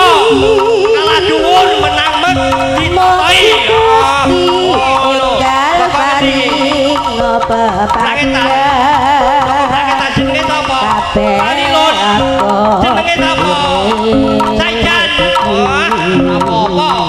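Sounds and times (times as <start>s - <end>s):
high wavering melody: 0.0s - 8.2s
hand drum strokes: 0.0s - 17.0s
held low tones: 0.0s - 17.0s.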